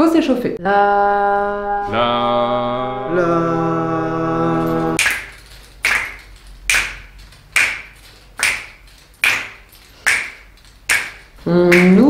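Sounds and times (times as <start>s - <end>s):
man singing a note: 1.5s - 5.0s
people snapping fingers: 5.0s - 12.0s.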